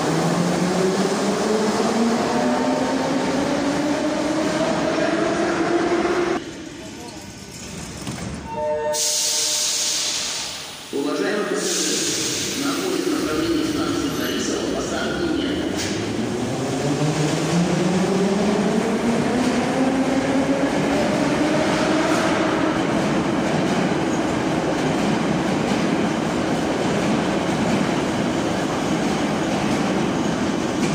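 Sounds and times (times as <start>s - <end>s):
train wheels rumbling on track: 11.6s - 30.9s.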